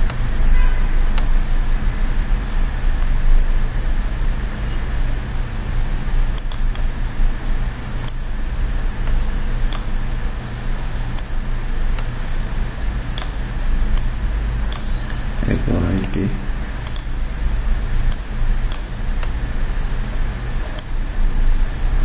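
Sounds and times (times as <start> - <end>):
low electrical hum: 0.0 - 22.0
computer mouse clicks: 6.3 - 6.9, 8.0 - 8.3, 9.0 - 10.0, 11.1 - 12.1, 13.1 - 14.1, 14.7 - 15.2, 16.8 - 17.2, 18.1 - 19.4, 20.6 - 21.0.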